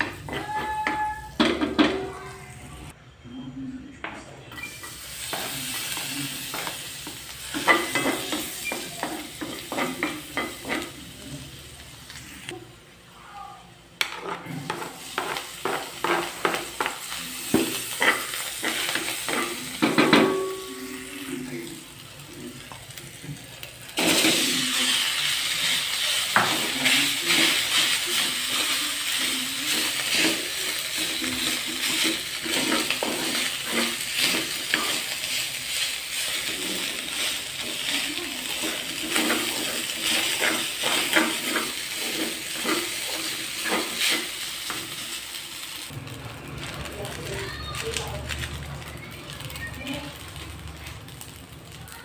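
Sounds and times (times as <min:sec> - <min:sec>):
rice sizzling in hot oil: 0:04.6 - 0:12.4, 0:14.6 - 0:52.0
wooden spatula scraping wok: 0:14.2 - 0:19.8, 0:24.0 - 0:45.1.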